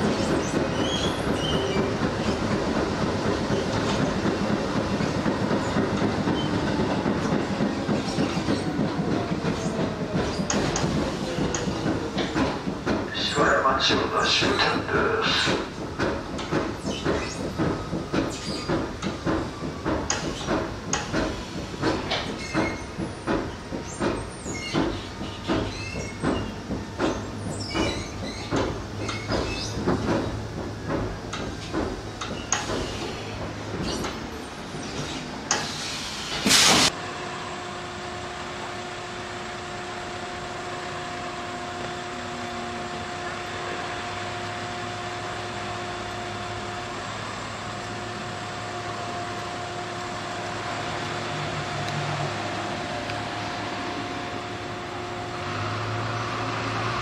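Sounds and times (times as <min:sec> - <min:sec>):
train wheels clacking over rail joints: 0:00.0 - 0:13.8, 0:14.5 - 0:37.0
train rumble: 0:00.0 - 0:57.0
short loud hiss: 0:35.6 - 0:36.9.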